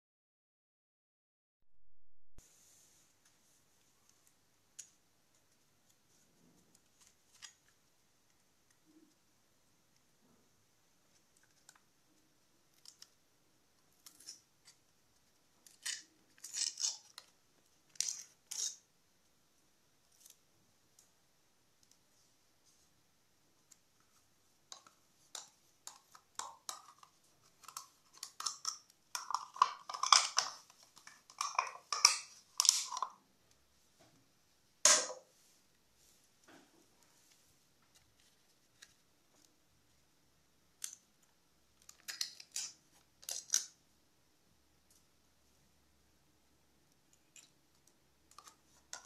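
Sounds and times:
spoon scraping plastic cup: 0:15.7 - 0:17.3, 0:24.8 - 0:33.2.

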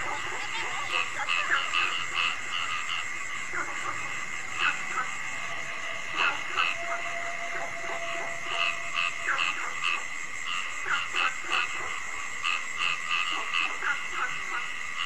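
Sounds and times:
frogs calling in short notes: 0:00.0 - 0:15.0
high-pitched chorus: 0:01.0 - 0:10.8.

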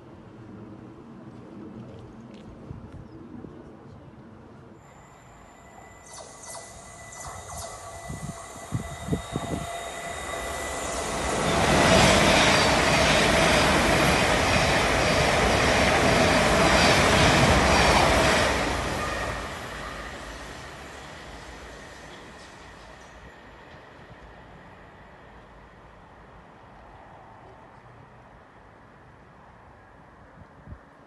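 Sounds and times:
train wheels rushing on rail: 0:04.8 - 0:25.8.

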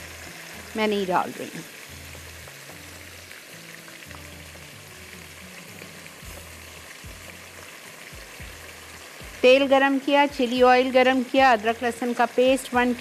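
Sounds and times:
faint music: 0:00.0 - 0:13.0
sauce sizzling in a wok: 0:00.0 - 0:13.0.

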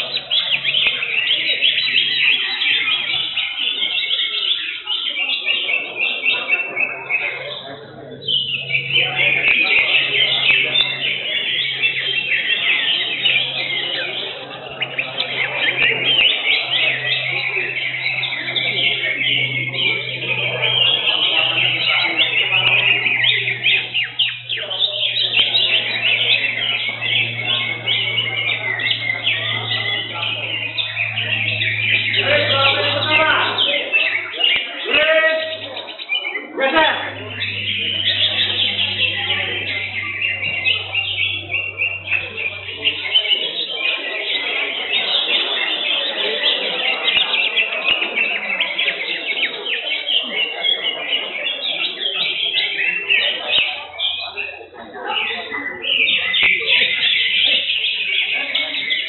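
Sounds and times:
bird chirping and twittering: 0:00.0 - 0:59.0
low background murmur: 0:00.0 - 0:59.0
steady low hum: 0:07.2 - 0:43.6.

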